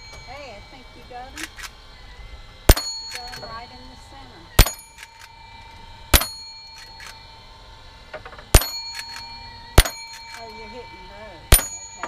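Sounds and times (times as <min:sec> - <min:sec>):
air rifle shots: 0:04.6 - 0:05.1
pellets striking metal targets: 0:06.1 - 0:07.0, 0:08.5 - 0:10.8, 0:11.5 - 0:12.0.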